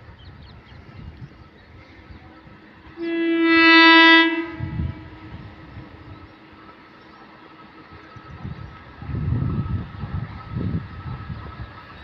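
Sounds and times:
locomotive horn blast: 2.9s - 5.6s.

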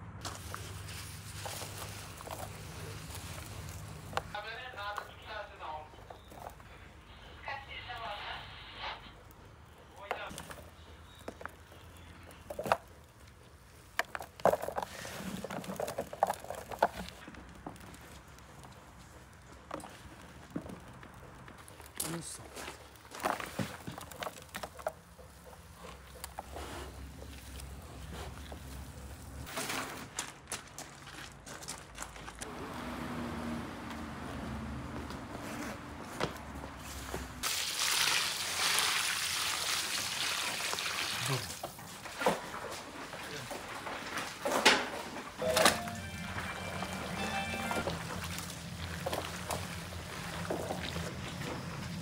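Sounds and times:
outdoor background noise: 0.0s - 52.0s
wet squelching of mixed meat: 47.8s - 52.0s.

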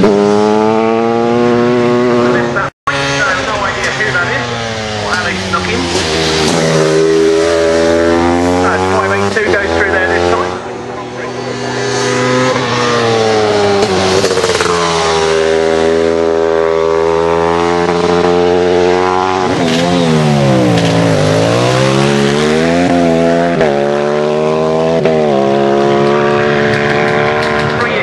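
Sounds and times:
racing motorcycle engine revving: 0.0s - 28.0s.

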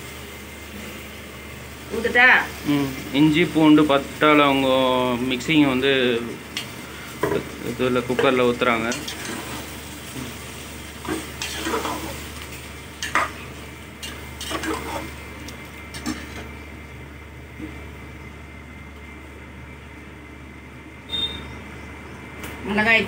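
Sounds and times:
food sizzling: 0.0s - 20.2s
ladle scraping a pot: 14.0s - 15.1s.

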